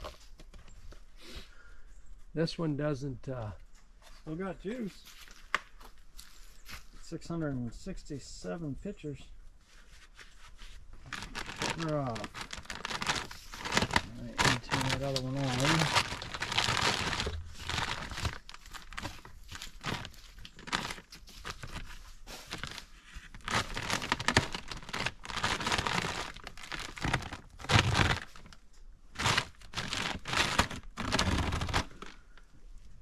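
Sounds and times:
gear rustling and crinkling: 0:08.4 - 0:33.0.

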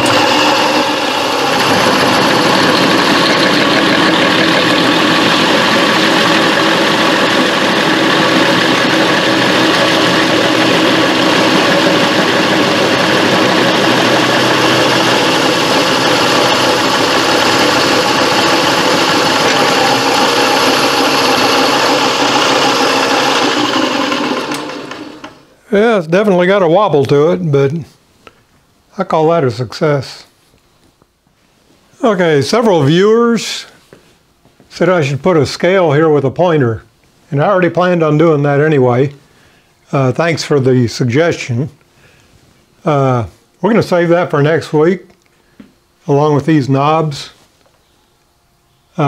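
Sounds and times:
drill boring through steel: 0:00.0 - 0:25.5
drill press running: 0:00.0 - 0:25.5.

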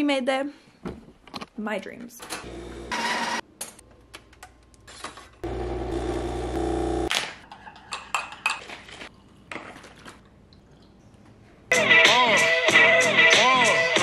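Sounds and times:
espresso machine motor hum: 0:02.5 - 0:03.0, 0:05.4 - 0:07.1.

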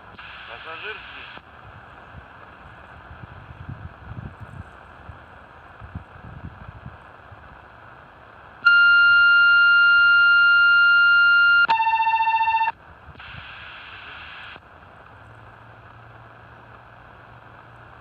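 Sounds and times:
radio noise burst: 0:00.0 - 0:01.4, 0:13.2 - 0:14.6
radio receiver hiss: 0:00.0 - 0:03.8, 0:12.4 - 0:15.8
steady electronic tone: 0:08.6 - 0:14.0.

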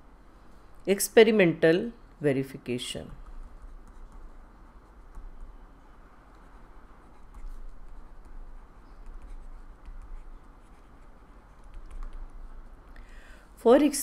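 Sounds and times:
low room hum: 0:00.0 - 0:14.0
pen scratching on paper: 0:06.3 - 0:12.2.

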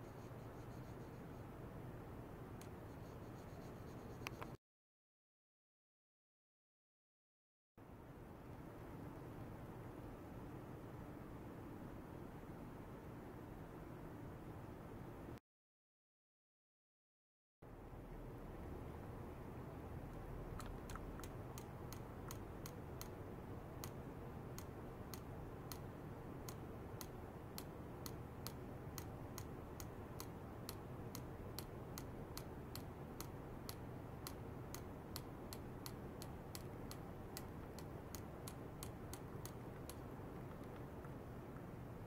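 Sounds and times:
sharp ticking clicks: 0:20.6 - 0:41.2.

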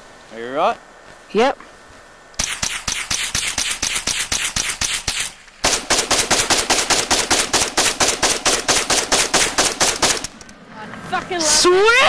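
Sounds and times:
automatic rifle bursts: 0:02.4 - 0:10.5.

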